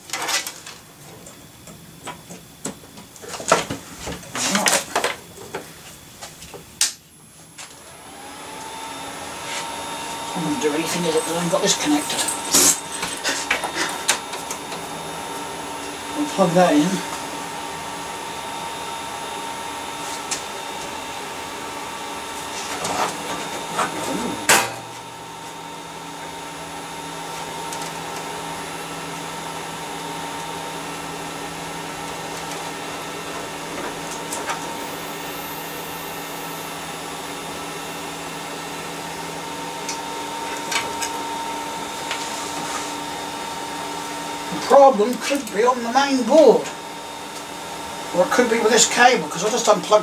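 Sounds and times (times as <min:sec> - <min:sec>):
server fans whirring: 0:00.0 - 0:50.0
hard drive hum: 0:00.6 - 0:45.5.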